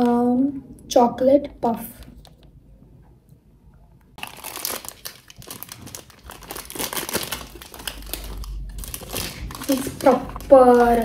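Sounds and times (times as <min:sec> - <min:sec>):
plastic snack packet crackling: 0:04.2 - 0:11.0.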